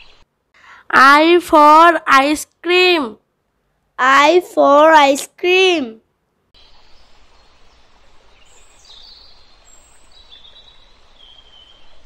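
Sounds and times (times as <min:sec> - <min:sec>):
steady low hiss: 0:00.0 - 0:12.0
faint bird chirps: 0:06.6 - 0:12.0.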